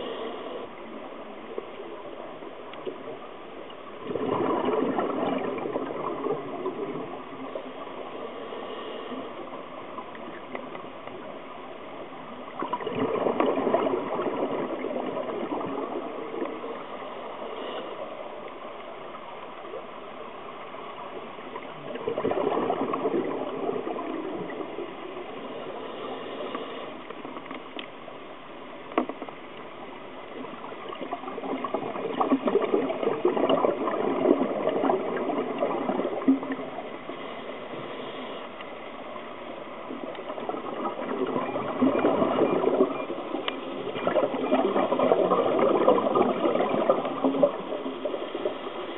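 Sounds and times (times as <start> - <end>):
steady hiss: 0.0 - 4.0, 7.0 - 12.5, 15.9 - 21.7, 23.9 - 30.9, 36.4 - 40.2
underwater air bubbling: 0.0 - 48.9.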